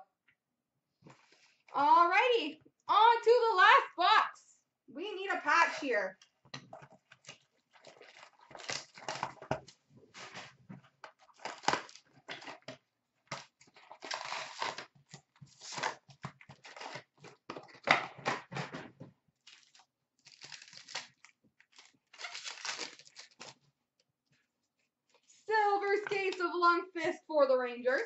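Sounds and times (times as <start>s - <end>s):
card packs ripping and crinkling: 7.8s - 9.6s, 11.2s - 12.7s, 13.3s - 17.8s, 19.5s - 23.6s.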